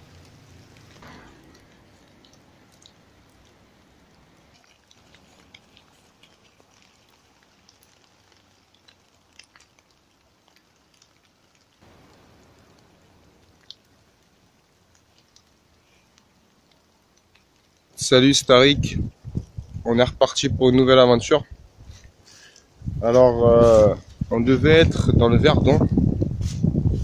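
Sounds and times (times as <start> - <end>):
faint forest ambience: 0.0 - 18.6, 19.2 - 22.9
faint hiss: 0.0 - 24.6
soft ticks: 14.9 - 17.8.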